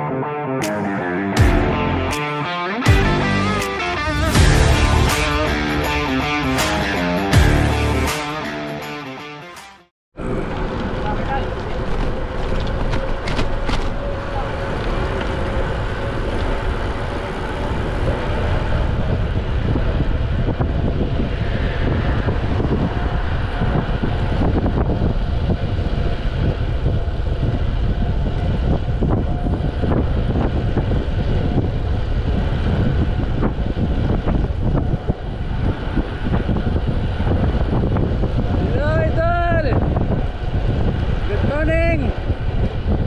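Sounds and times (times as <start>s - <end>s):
tyre noise on asphalt: 10.2s - 38.4s
wind on microphone: 10.2s - 43.0s.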